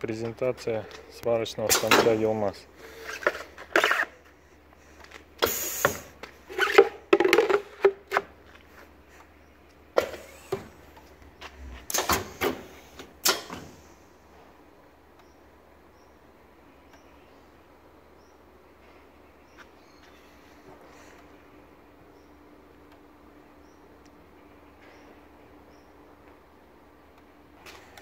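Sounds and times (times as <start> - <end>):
short hiss: 5.4 - 6.2.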